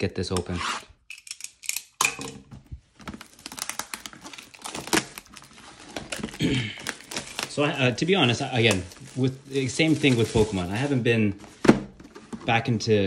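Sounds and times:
packaging crinkling and tearing: 2.9s - 11.0s
packaging snapping: 3.0s - 10.9s.

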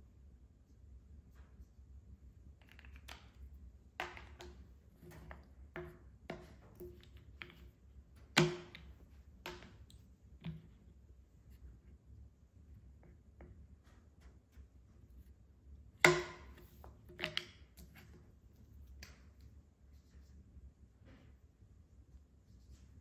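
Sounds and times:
wooden blocks clacking on table: 2.6s - 10.8s, 16.0s - 18.1s.

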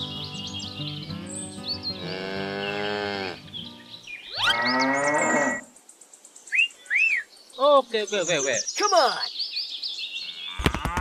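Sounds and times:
cattle mooing: 2.0s - 3.4s, 4.4s - 5.6s.

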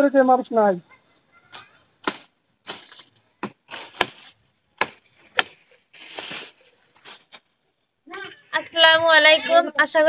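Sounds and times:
leaves rustling: 0.3s - 8.6s
twigs snapping: 1.5s - 8.0s.

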